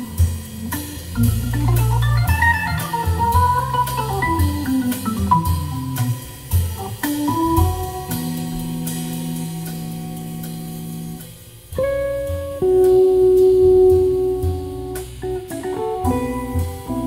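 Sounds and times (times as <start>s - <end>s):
organ holding chords: 0.0s - 11.2s
guitar: 0.0s - 17.0s.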